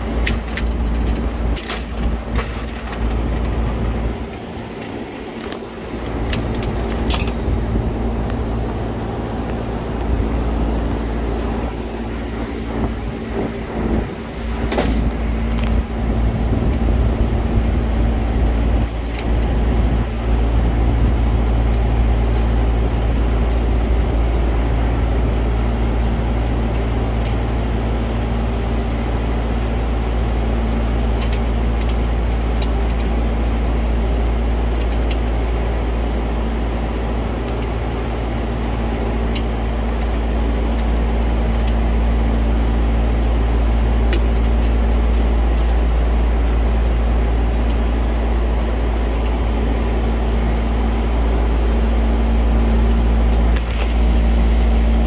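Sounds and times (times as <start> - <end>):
refrigeration machinery droning: 0.0 - 55.0
clicks and rattles of wire leads: 0.1 - 7.4, 16.6 - 28.2, 30.5 - 55.0.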